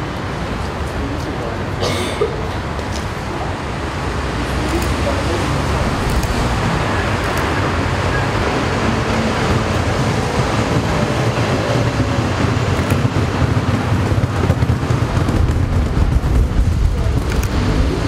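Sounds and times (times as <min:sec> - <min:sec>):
city street traffic rumble: 0:00.0 - 0:18.0.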